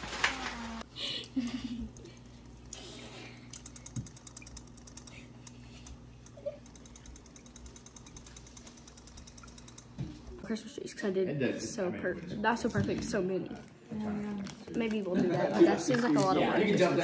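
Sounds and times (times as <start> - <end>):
rapid light mechanical clicking: 1.9 - 10.3.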